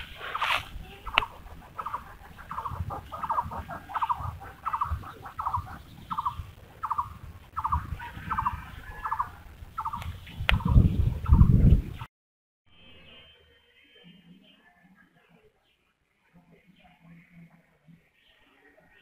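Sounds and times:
hands rustling in grass: 0:00.0 - 0:06.0
animal pulsed call: 0:00.0 - 0:10.0.

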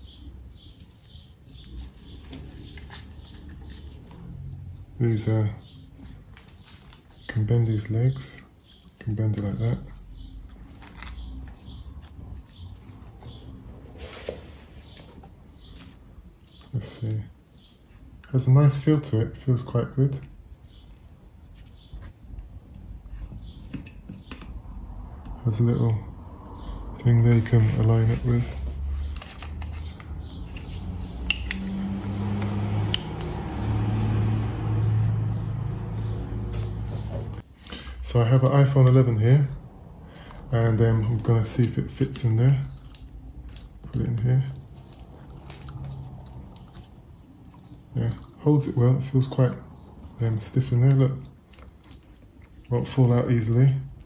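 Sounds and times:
low hum: 0:20.4 - 0:37.4
tripod handling rubbing and clicks: 0:28.4 - 0:33.1.

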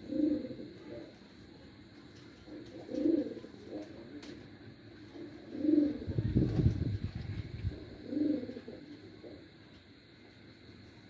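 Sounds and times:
pigeons cooing: 0:00.0 - 0:01.4, 0:02.4 - 0:04.4, 0:05.0 - 0:09.6.

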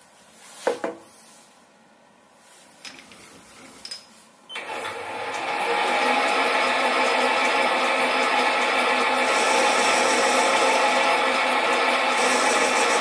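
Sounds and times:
mini lathe running: 0:04.6 - 0:13.0.

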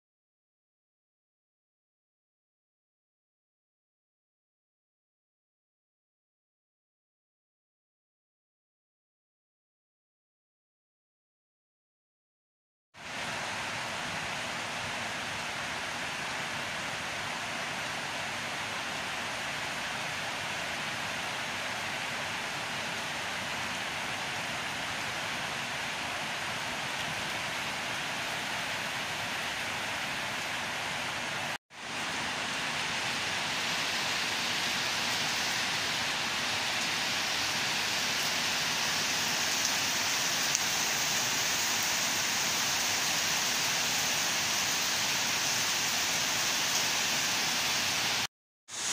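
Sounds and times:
heavy rain hissing: 0:13.0 - 0:48.9.

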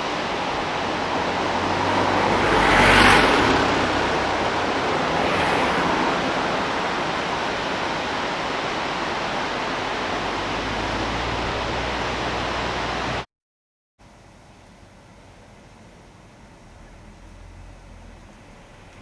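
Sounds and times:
outdoor rushing noise: 0:00.0 - 0:13.3.

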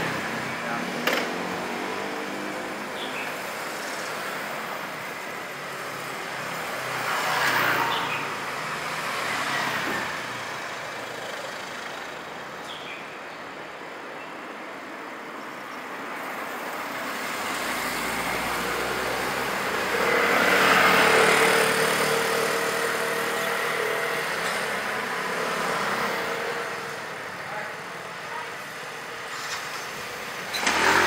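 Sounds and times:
street traffic: 0:00.0 - 0:31.0
motor scooter passing: 0:17.1 - 0:27.4, 0:29.4 - 0:31.0.

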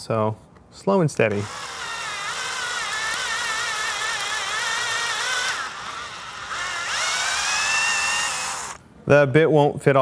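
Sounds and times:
cordless drill drilling plastic: 0:01.3 - 0:08.8.

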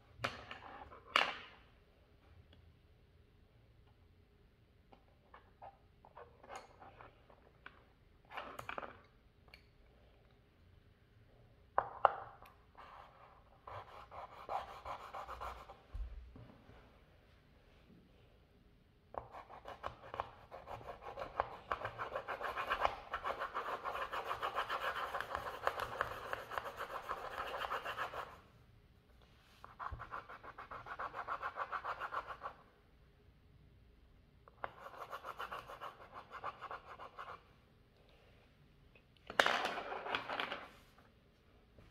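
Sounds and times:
colored pencil scribbling on paper: 0:12.8 - 0:15.8, 0:19.2 - 0:28.4, 0:34.6 - 0:37.5.

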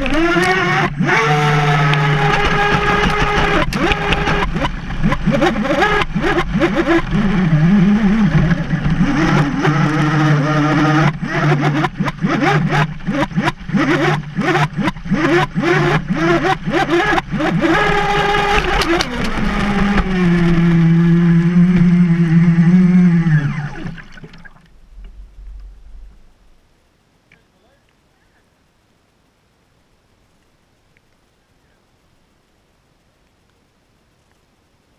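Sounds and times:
electric motor whining: 0:00.0 - 0:24.5
rapid knocks: 0:02.2 - 0:07.3.

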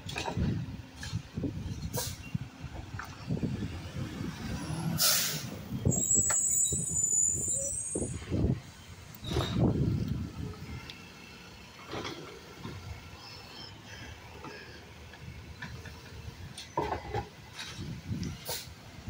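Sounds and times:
air brakes hissing: 0:01.8 - 0:02.4, 0:04.9 - 0:08.3, 0:18.4 - 0:18.8
garbage truck engine pulling away: 0:03.2 - 0:15.1.

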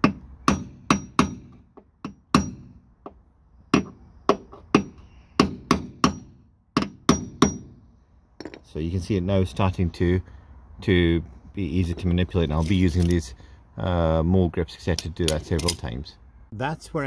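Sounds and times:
hammer tapping metal punch: 0:00.0 - 0:07.8.

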